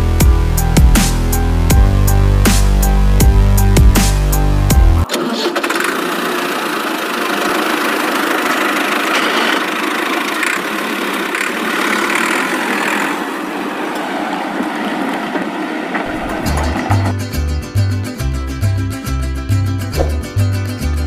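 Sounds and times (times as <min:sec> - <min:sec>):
rattly engine running: 0:05.0 - 0:14.0.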